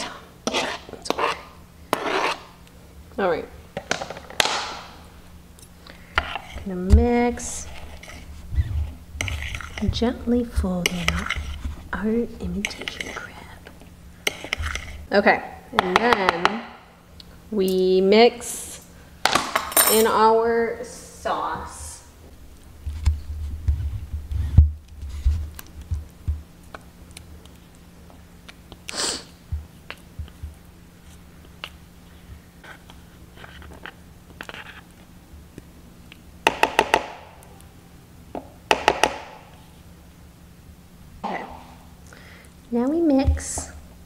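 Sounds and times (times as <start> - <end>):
spatula scraping bowl: 0.0 - 2.6, 5.9 - 15.1, 32.6 - 35.0
bowls thudding: 41.2 - 42.0.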